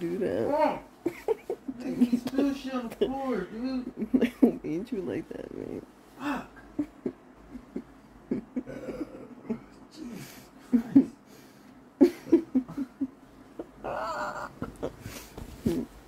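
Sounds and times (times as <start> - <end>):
woman giggling breathily: 6.2 - 9.8, 12.0 - 16.0.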